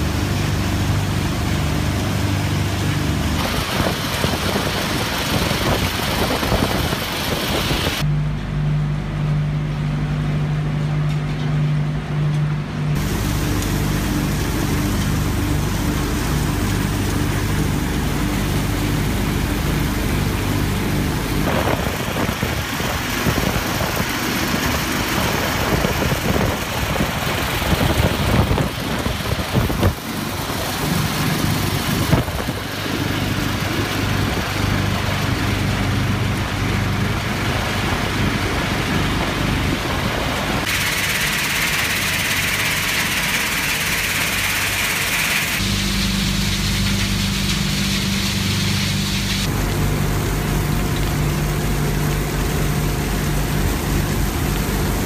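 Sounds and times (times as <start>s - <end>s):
electric motors humming: 7.2s - 43.3s
conveyor belts carrying stone: 12.9s - 55.0s
hiss: 40.6s - 49.5s.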